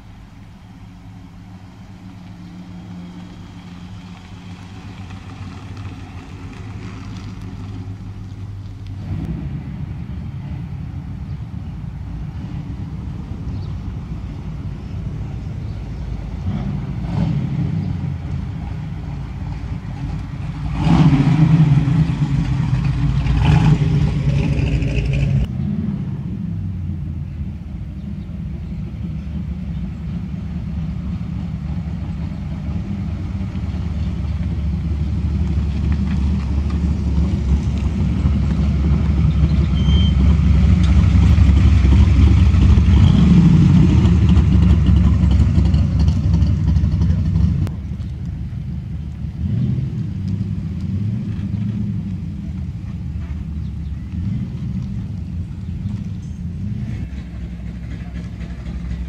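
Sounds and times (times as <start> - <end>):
deep engine rumble: 0.0 - 59.0
car engine revving: 16.4 - 26.8, 30.2 - 47.7, 49.2 - 59.0.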